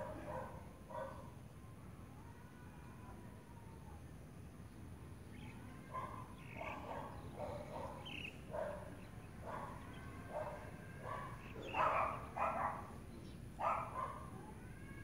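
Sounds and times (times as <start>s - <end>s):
dog barking: 0.0s - 1.3s, 5.9s - 12.9s, 13.6s - 14.3s.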